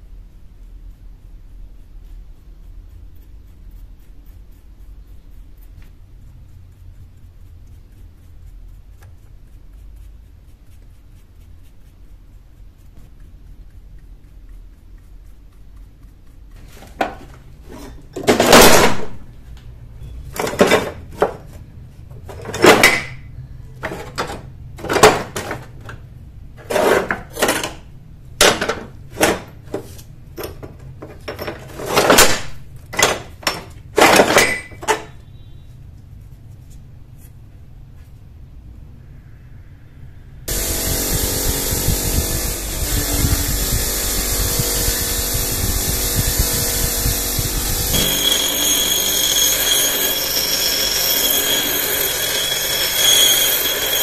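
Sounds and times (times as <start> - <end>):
faint low hum: 0.0 - 22.5
metal tools clanking and scraping: 17.0 - 19.2, 20.3 - 21.5, 22.3 - 26.0, 26.6 - 35.2, 47.2 - 54.0.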